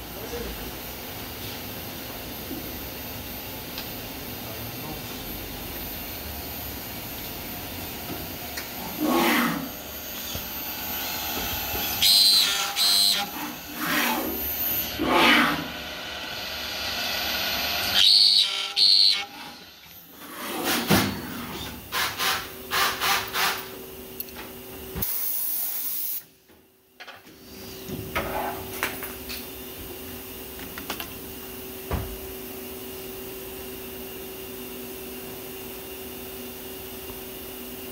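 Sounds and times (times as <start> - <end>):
steady machine hum: 0.0 - 24.9
milling spindle cutting metal: 8.6 - 20.6.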